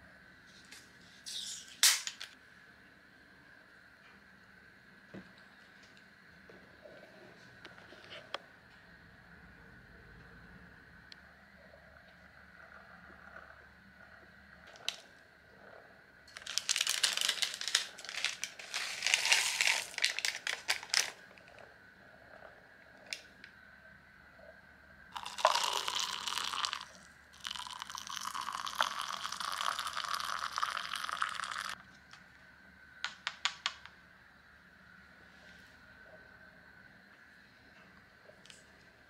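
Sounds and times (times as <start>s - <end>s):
foil pouch crinkling: 16.3s - 21.2s
water pouring into cup: 25.2s - 31.8s.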